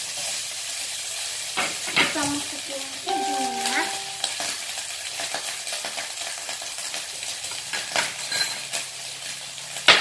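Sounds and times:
food sizzling in a frying pan: 0.0 - 10.0.

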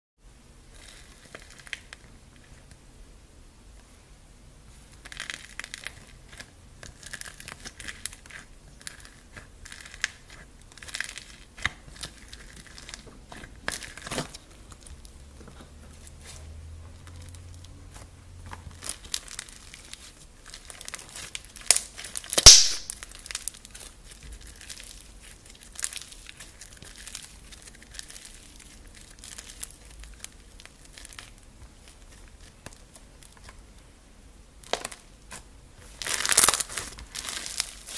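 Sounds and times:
bead slime crackling: 4.9 - 33.8, 34.6 - 37.9
sharp slime pop: 21.7 - 23.0.

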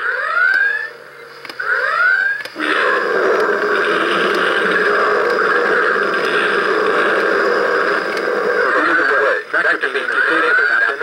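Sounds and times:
steady mechanical whir: 0.0 - 11.0
electronic klaxon whoops: 1.6 - 9.5.

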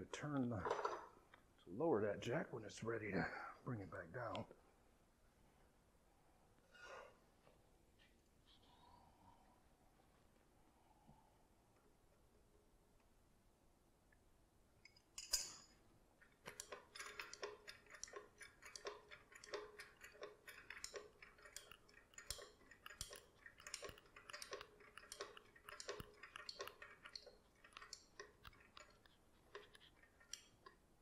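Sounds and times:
metallic clicks and creaks: 14.8 - 31.0
floor jack valve click: 16.5 - 30.8.

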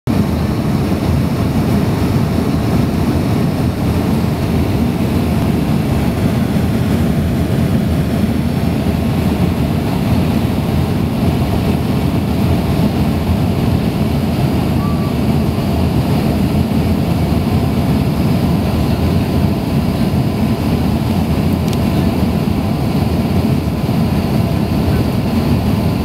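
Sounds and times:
jet airliner cabin noise: 0.1 - 26.0.

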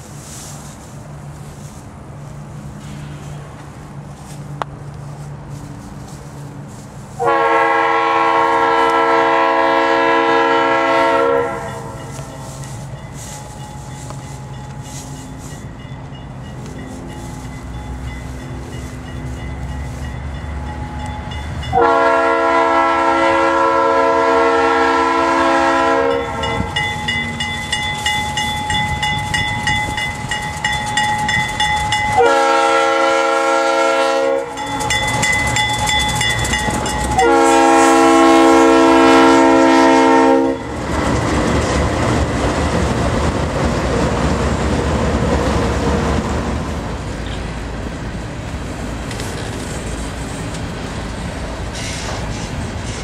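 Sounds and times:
freight cars rumbling on rails: 0.0 - 53.0
train horn: 7.1 - 13.6, 21.6 - 26.8, 31.8 - 35.0, 36.5 - 40.8
bell ringing: 11.7 - 21.8, 26.1 - 32.2, 34.5 - 37.3.

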